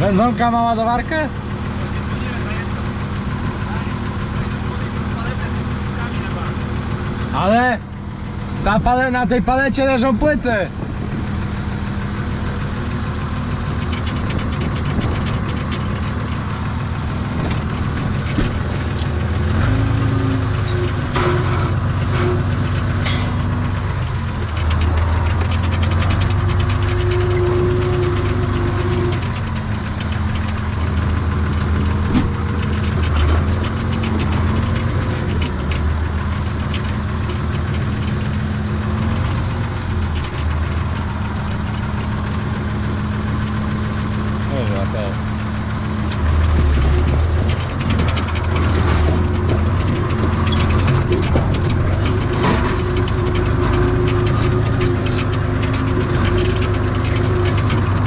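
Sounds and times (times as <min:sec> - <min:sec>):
tractor diesel engine revving: 0:00.0 - 0:58.0
sharp clanks: 0:12.8 - 0:58.0.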